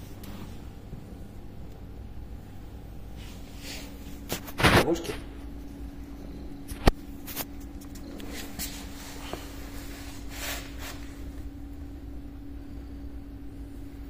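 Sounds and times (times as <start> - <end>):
low hum: 0.0 - 14.0
cat brushing on tiled floor: 3.2 - 4.9, 7.0 - 11.4.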